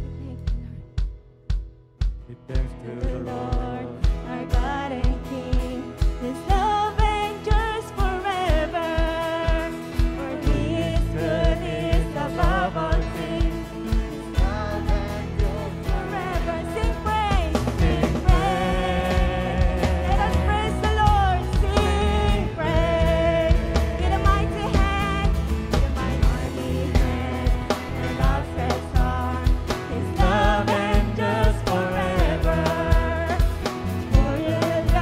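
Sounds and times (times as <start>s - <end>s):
kick drum beat: 0.0s - 5.2s
acoustic guitar: 0.0s - 35.0s
bass guitar: 0.0s - 35.0s
keyboard: 0.0s - 35.0s
singers' voices: 2.4s - 35.0s.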